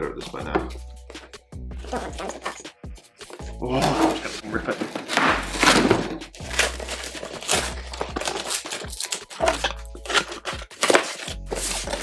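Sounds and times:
cardboard crumpling: 1.8s - 2.6s, 3.2s - 12.0s
cardboard tearing: 3.7s - 12.0s.

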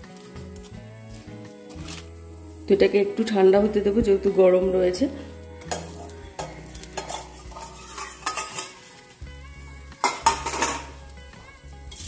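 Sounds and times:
egg sizzling in oil: 5.2s - 12.0s
metal bowl clattering on iron pan: 5.6s - 8.8s, 10.0s - 11.0s.

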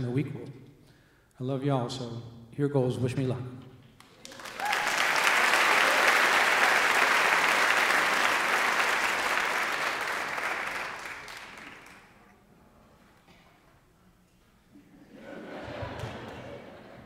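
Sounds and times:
audience applauding: 4.0s - 12.2s.

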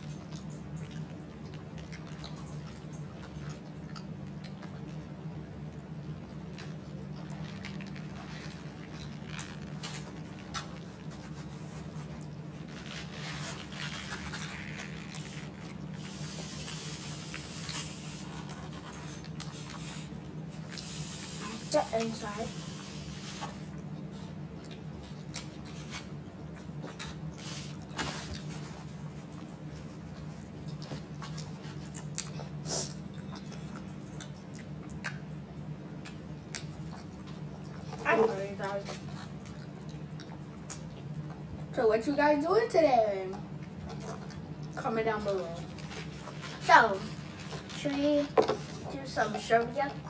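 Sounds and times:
chewing mouth clicks and smacks: 0.0s - 12.4s, 23.7s - 28.6s, 29.3s - 38.0s, 38.9s - 41.7s, 43.4s - 44.8s
steady low hum: 0.0s - 50.0s
paper napkins rustling: 7.4s - 19.0s.

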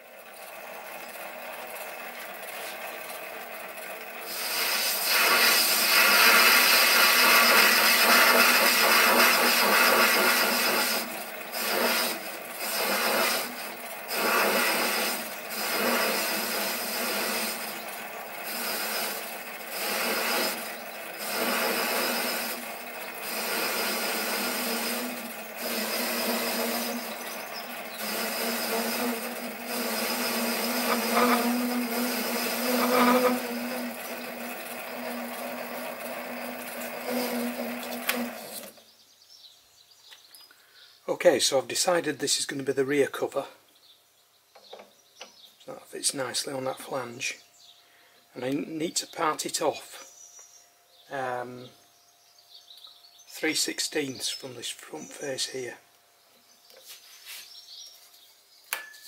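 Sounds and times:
lathe cutting metal scratchily: 0.0s - 38.7s
lathe motor humming: 0.0s - 38.8s.

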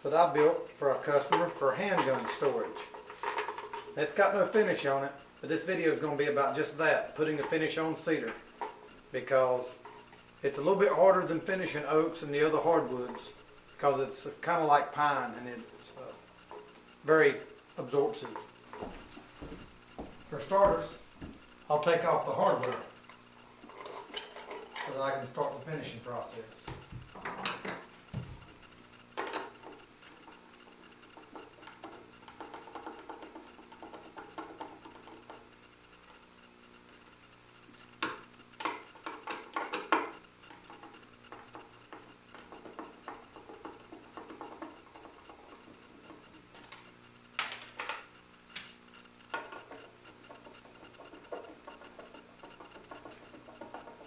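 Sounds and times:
faint steady hum: 0.0s - 54.0s
metallic clinks and scrapes: 23.6s - 27.7s.

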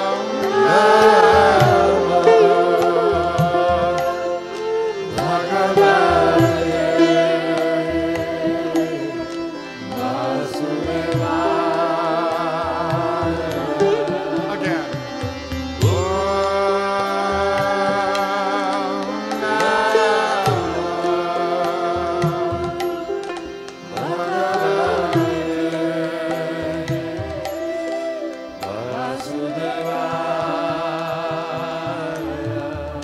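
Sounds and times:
harmonium: 0.0s - 33.0s
sitar: 0.0s - 33.0s
bamboo flutes: 26.3s - 30.6s.

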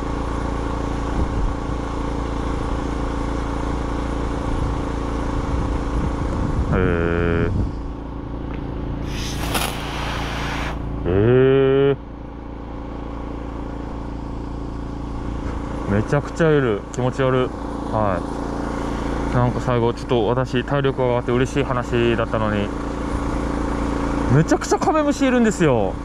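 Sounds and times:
engine running steadily: 0.0s - 26.0s
brief hiss: 9.0s - 10.8s.

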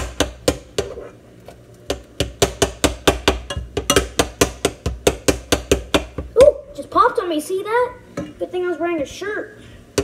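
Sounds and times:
metal spoon knocking on pot: 1.9s - 6.3s.

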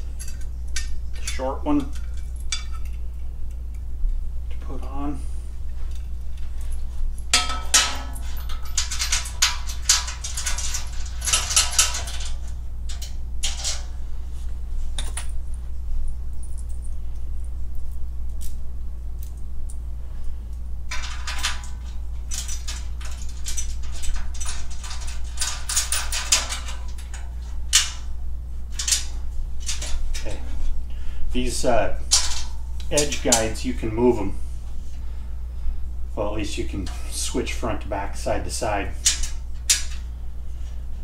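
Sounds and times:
bolts and nuts clinking in hand: 0.0s - 3.2s, 5.9s - 14.0s, 15.0s - 15.7s, 16.3s - 18.6s, 20.9s - 30.7s, 32.0s - 33.9s
low hum: 0.0s - 41.0s.

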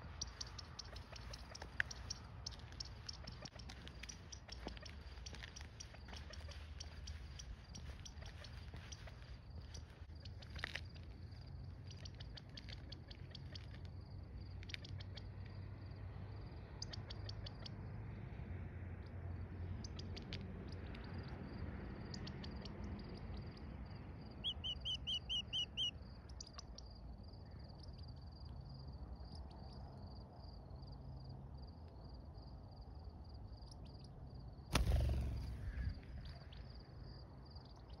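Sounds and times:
chick peeping: 0.2s - 9.2s, 24.4s - 26.6s
cricket trilling: 20.7s - 38.0s.

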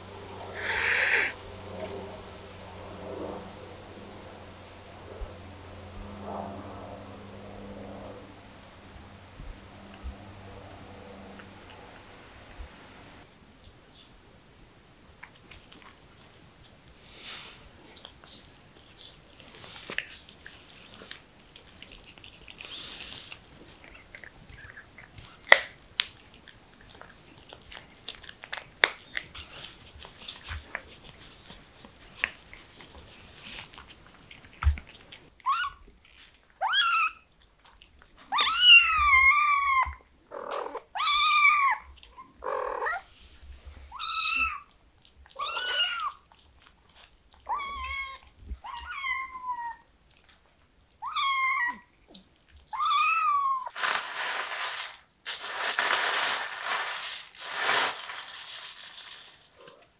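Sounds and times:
cats meowing: 0.5s - 1.4s, 36.6s - 37.2s, 38.2s - 43.1s, 43.9s - 46.3s, 47.4s - 49.9s, 51.0s - 53.7s
cat chewing and licking: 15.2s - 36.6s, 37.3s - 38.4s, 44.6s - 48.8s.

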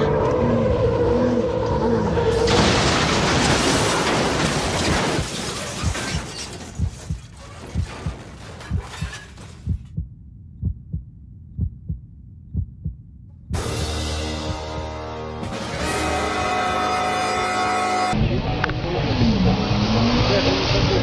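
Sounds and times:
car crash impact and scraping: 2.3s - 9.7s
thumping heartbeat: 6.8s - 14.8s.

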